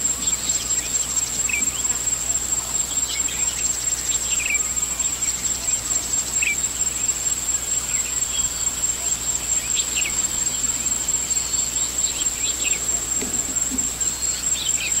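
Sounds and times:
bird chirps: 0.0s - 15.0s
insects buzzing: 0.0s - 15.0s.

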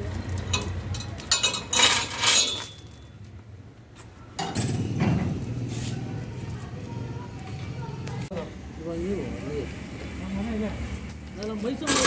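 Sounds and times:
metal chain clanking: 0.0s - 3.4s, 11.8s - 12.0s
engine rumble: 0.0s - 12.0s.

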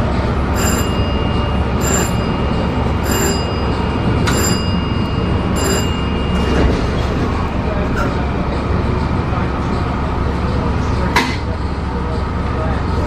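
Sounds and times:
train rumbling on rails: 0.0s - 13.0s
thin high whine: 0.5s - 6.8s
short metallic ringing: 0.6s - 6.7s.

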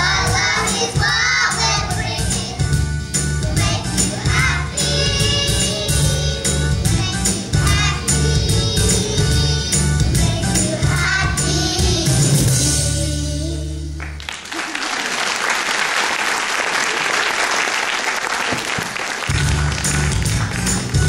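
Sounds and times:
children singing: 0.0s - 2.7s, 3.4s - 13.6s
backing music: 0.0s - 14.3s, 19.3s - 21.0s
audience applauding: 14.0s - 21.0s.

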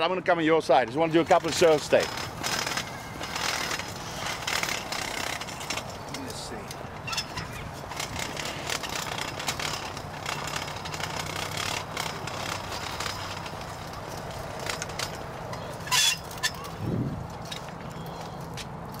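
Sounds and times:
engine humming: 1.0s - 19.0s
light footstep clicks: 12.5s - 19.0s.

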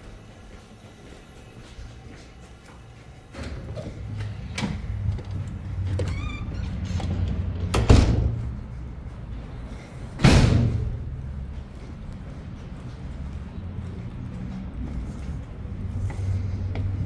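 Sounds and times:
door squeaking: 5.8s - 7.6s
heavy door thuds: 6.0s - 8.4s, 10.2s - 11.0s.

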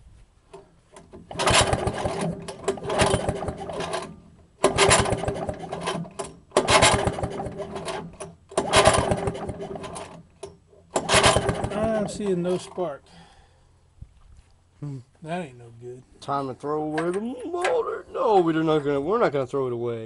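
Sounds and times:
recoil pull-starter ticking: 0.5s - 11.9s.

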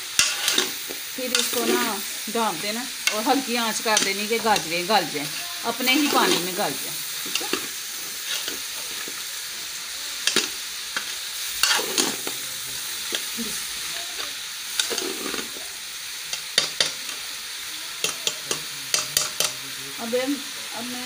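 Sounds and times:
vegetables sizzling in a pot: 0.0s - 21.0s
metal spoon scraping a pot: 0.1s - 2.0s, 7.2s - 8.7s, 10.3s - 12.4s, 14.8s - 15.6s.

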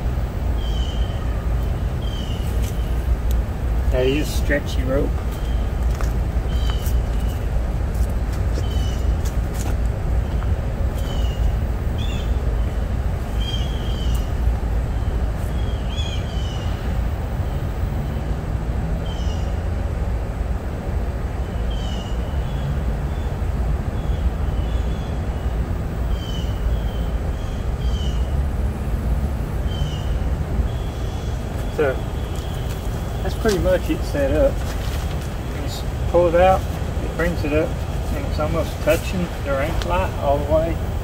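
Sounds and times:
steady low rumble: 0.0s - 41.0s
bird chirping: 0.6s - 3.1s, 5.2s - 5.8s, 6.4s - 7.5s, 8.5s - 9.2s, 10.2s - 17.6s, 29.6s - 40.8s.

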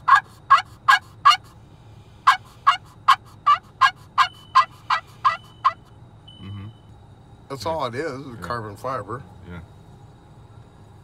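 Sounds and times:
turkey call yelps: 0.0s - 1.5s, 2.2s - 5.9s.

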